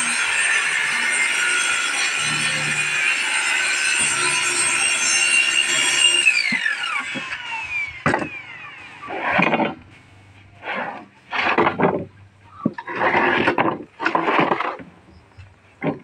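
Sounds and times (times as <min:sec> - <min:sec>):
plywood sheets scraping: 0:09.0 - 0:15.0.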